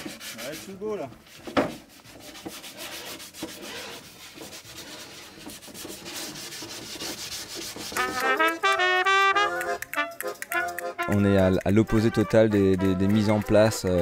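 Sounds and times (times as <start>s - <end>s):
cardboard box scraping on metal: 1.4s - 7.8s
brass music: 7.9s - 14.0s.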